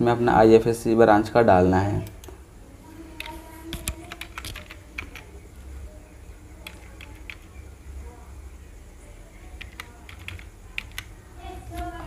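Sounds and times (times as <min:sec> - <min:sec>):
keyboard key clicks: 0:03.2 - 0:05.3.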